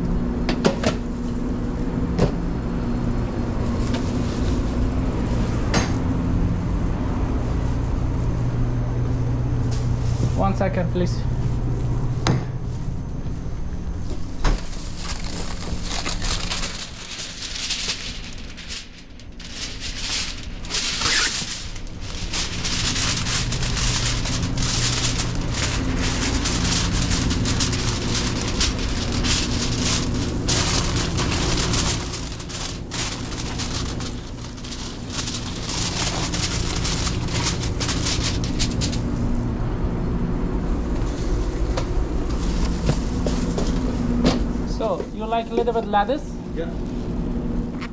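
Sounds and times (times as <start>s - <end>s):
kitchen equipment humming: 9.0s - 47.9s
aluminium foil crinkling: 14.6s - 39.3s.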